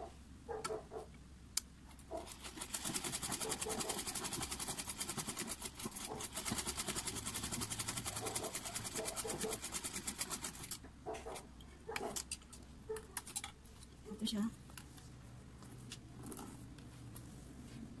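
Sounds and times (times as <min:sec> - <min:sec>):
sewing machine stitching: 0:02.2 - 0:10.8.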